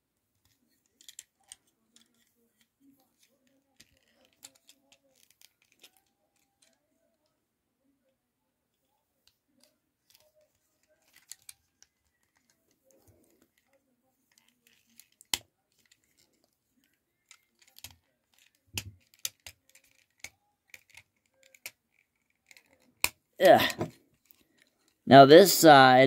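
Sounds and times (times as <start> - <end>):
hard plastic clicks and taps: 14.3 - 23.2.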